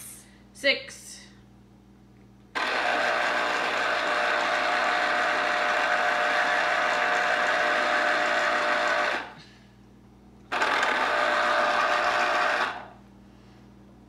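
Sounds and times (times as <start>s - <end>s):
electric juicer motor running: 2.5s - 9.4s, 10.5s - 13.0s.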